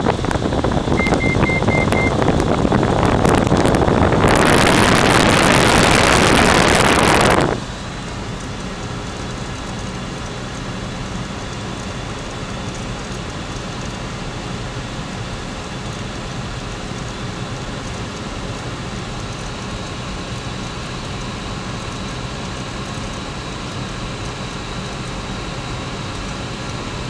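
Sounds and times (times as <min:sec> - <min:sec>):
aircraft engine drone: 0:00.0 - 0:27.0.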